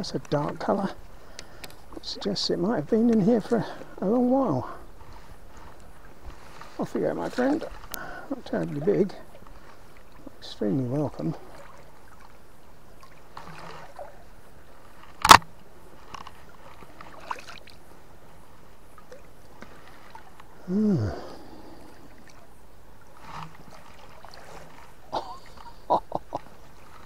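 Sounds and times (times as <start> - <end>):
river water running: 0.0 - 27.0
person humming hmm: 20.6 - 21.5.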